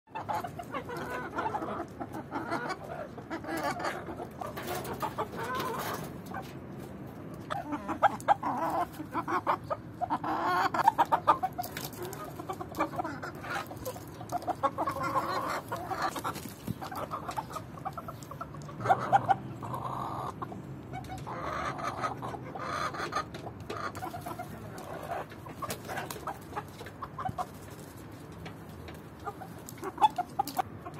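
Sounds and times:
chickens clucking: 0.1s - 30.9s
loud chicken calls: 7.4s - 27.6s.

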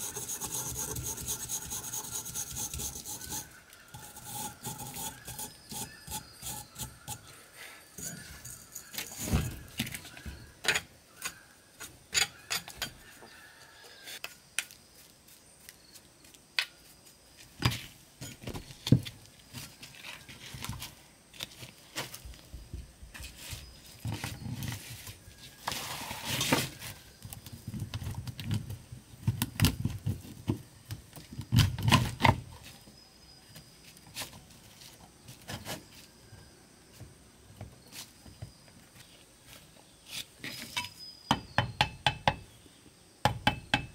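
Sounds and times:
rasping scrape: 0.0s - 7.3s.

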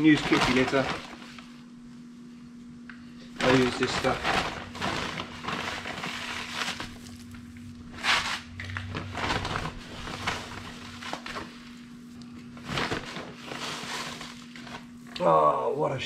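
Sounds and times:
bag rustling: 3.4s - 12.0s.

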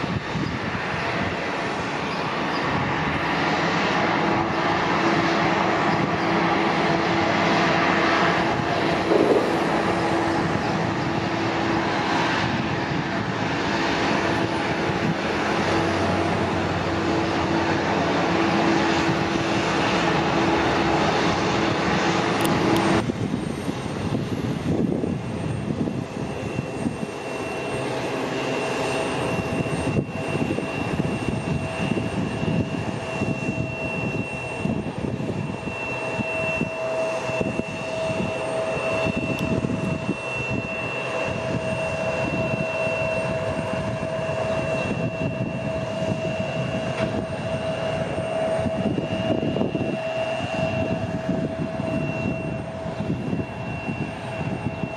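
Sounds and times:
jet engines rushing hum: 0.0s - 54.9s
jet whine with high tones: 0.0s - 54.9s.

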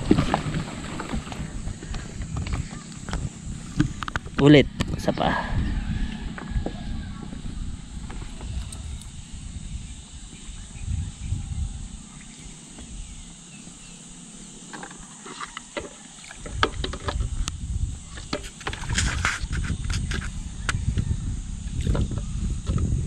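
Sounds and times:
water sloshing and splashing: 0.0s - 2.7s.

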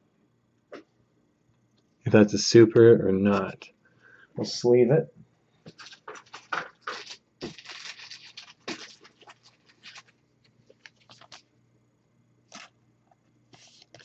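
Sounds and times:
cards and plastic sleeve rustling: 5.7s - 11.5s, 12.5s - 12.7s, 13.5s - 14.0s.

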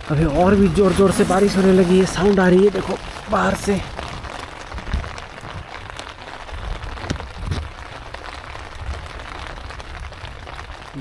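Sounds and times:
low rumbling: 0.0s - 7.9s
rain hiss: 0.0s - 11.0s
rain tapping on tent: 0.0s - 11.0s.

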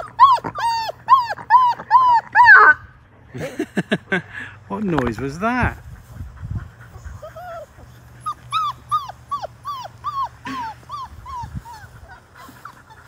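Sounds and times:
puppy whimpering: 0.0s - 2.8s, 7.0s - 13.0s.

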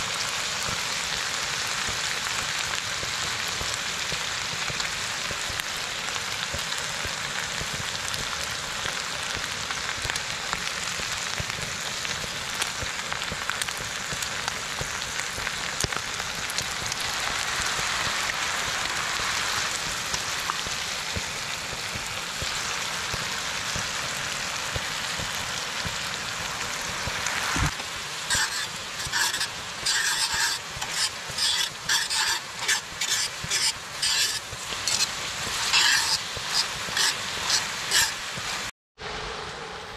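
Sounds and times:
meat sizzling in a skillet: 0.0s - 38.7s
metal tongs scraping a pan: 27.8s - 38.7s.

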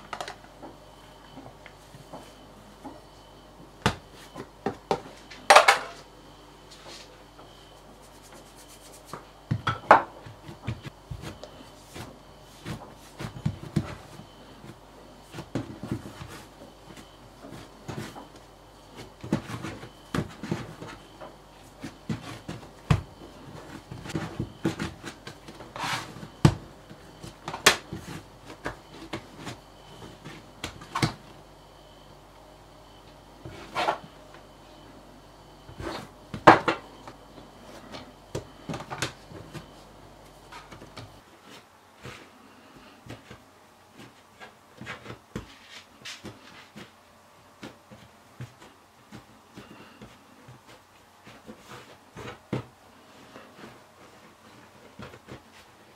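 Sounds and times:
hands thumping and rubbing dough: 3.8s - 5.1s.

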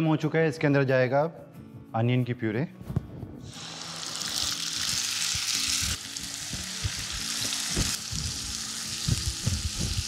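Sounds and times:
onion puree sizzling in oil: 3.5s - 10.0s.

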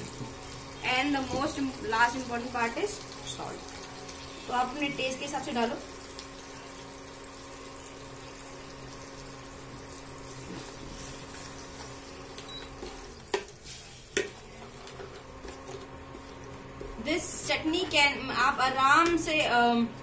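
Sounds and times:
sauce bubbling and sizzling: 0.0s - 18.4s
steady low hum: 0.0s - 20.0s
wooden spatula stirring: 10.3s - 18.1s.

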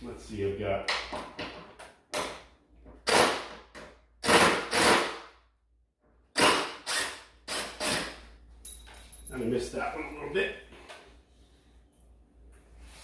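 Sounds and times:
cordless drill driving screws: 6.4s - 8.1s.

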